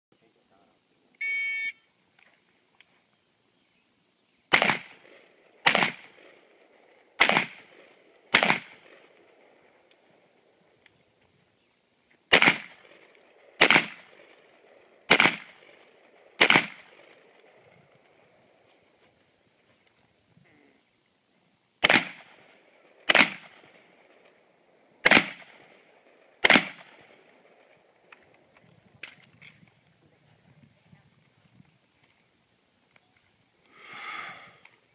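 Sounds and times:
pistol shots echoing: 4.5s - 9.7s, 12.3s - 17.6s, 21.8s - 24.4s, 25.0s - 28.1s.

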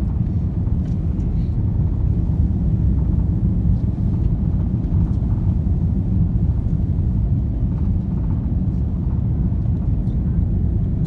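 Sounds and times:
airplane engine rumble in cabin: 0.0s - 11.0s.

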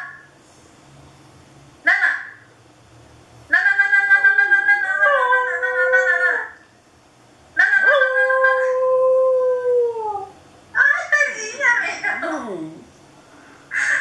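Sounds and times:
dog howling: 3.5s - 6.6s, 7.6s - 10.4s.

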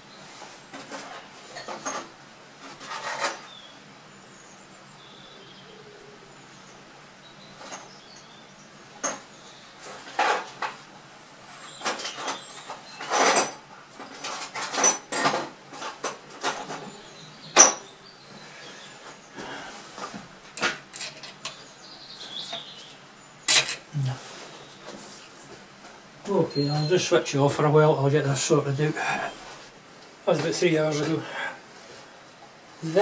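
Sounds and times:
metal bolts and tools clinking: 11.9s - 16.8s, 20.6s - 21.6s, 23.5s - 23.9s.

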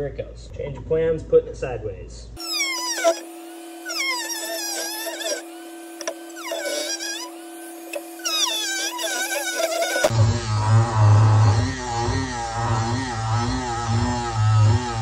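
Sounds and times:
rotary tool cutting plastic: 2.4s - 10.2s.

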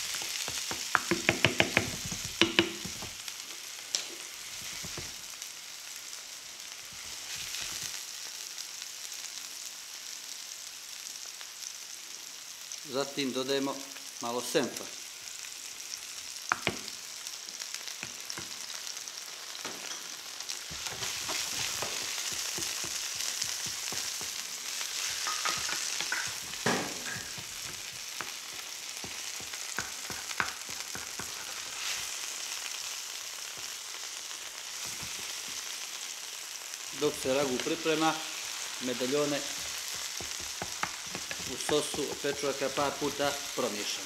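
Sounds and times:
meat sizzling in a frying pan: 0.0s - 44.0s
wooden spoon scraping a pan: 19.8s - 32.4s, 37.2s - 43.3s.

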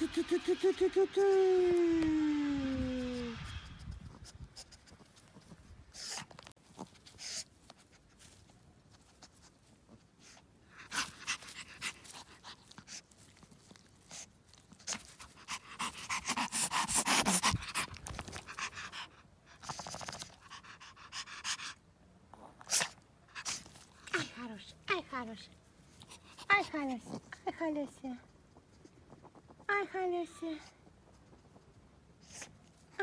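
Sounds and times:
dog panting: 10.2s - 21.8s, 25.2s - 29.4s.

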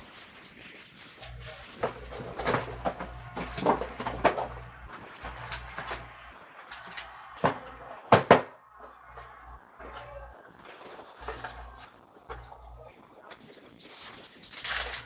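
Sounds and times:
cardboard knocking and scraping: 1.8s - 6.1s.

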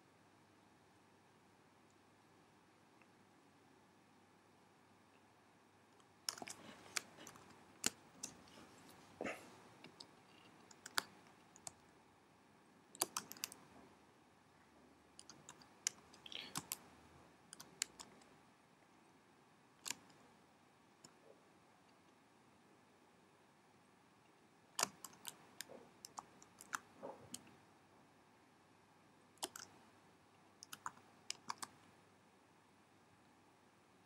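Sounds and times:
keyboard keystrokes: 6.3s - 8.4s, 10.7s - 11.8s, 13.0s - 13.7s, 17.6s - 18.2s, 24.8s - 25.4s, 29.4s - 29.8s, 30.6s - 31.8s
mouse clicks: 6.3s - 8.5s, 9.8s - 11.8s, 13.0s - 13.7s, 15.2s - 16.9s, 17.5s - 18.2s, 19.8s - 20.2s, 24.8s - 27.6s, 29.4s - 29.8s, 30.6s - 31.8s.

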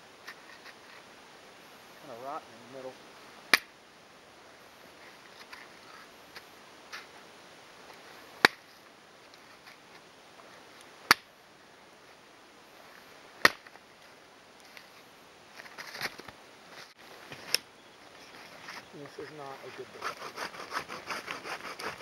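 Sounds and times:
axe chopping wood: 3.5s - 3.7s, 8.4s - 8.6s, 11.1s - 11.3s, 13.4s - 13.7s.

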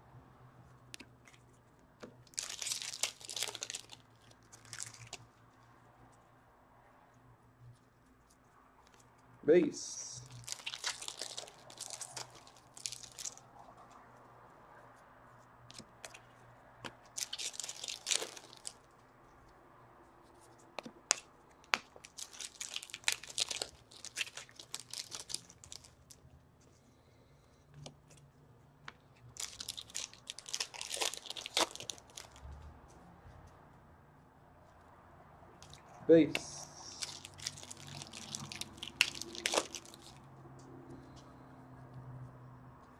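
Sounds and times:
wrappers tearing and crinkling: 2.2s - 5.2s, 10.2s - 13.4s, 17.1s - 18.9s, 21.8s - 26.2s, 29.3s - 32.4s, 36.6s - 40.2s.

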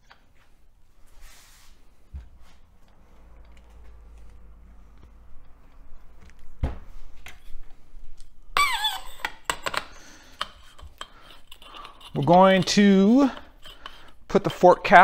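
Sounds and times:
metal parts clicking and knocking: 9.2s - 14.6s.

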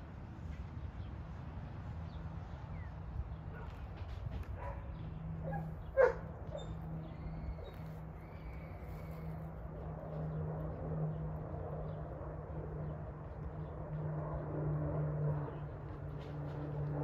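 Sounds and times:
steady low hum: 0.0s - 17.0s
dog barking: 4.6s - 6.7s
dog yelping: 5.4s - 6.8s.

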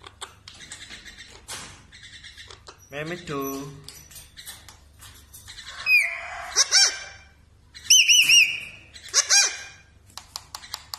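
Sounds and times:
parakeet whistling calls: 7.7s - 9.8s.

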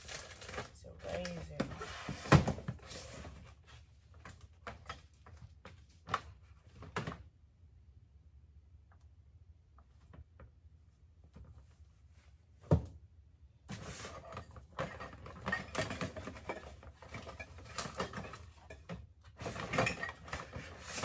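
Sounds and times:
rummaging in plastic drawer: 0.0s - 7.2s, 13.7s - 21.0s.

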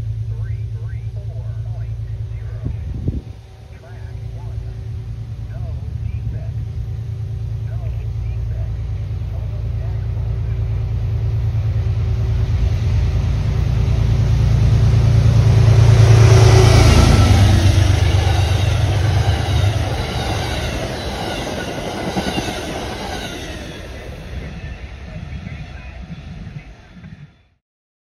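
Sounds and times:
diesel locomotive engine drone: 0.0s - 27.6s
train wheels clattering on rails: 14.2s - 24.7s.

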